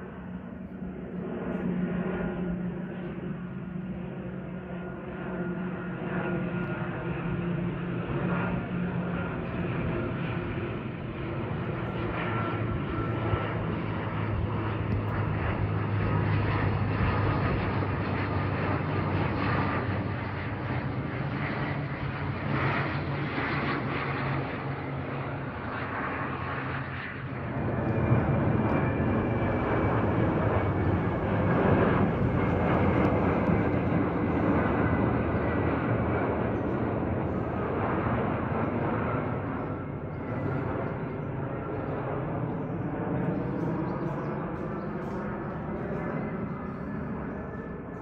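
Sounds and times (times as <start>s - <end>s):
jet airliner passing overhead: 0.0s - 48.0s
propeller plane droning overhead: 0.0s - 48.0s.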